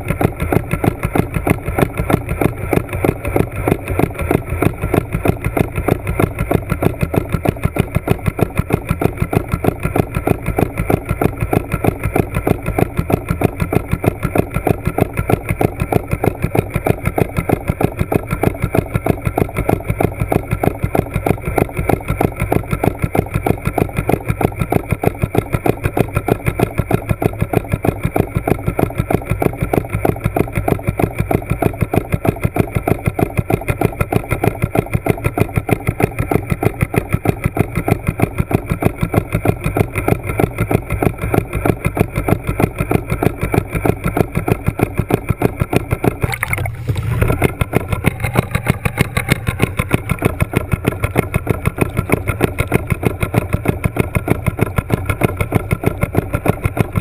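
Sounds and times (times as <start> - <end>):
motor pulsing underwater: 0.0 - 57.0.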